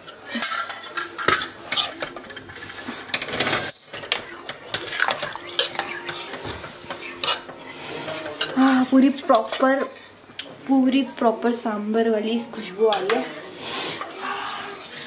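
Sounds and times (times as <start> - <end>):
metal spoon scraping a steel pot: 0.3 - 8.6.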